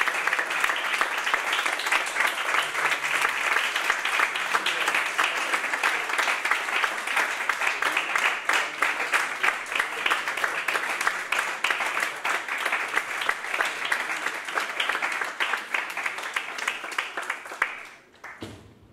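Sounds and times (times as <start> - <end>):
audience applauding: 0.0 - 18.5.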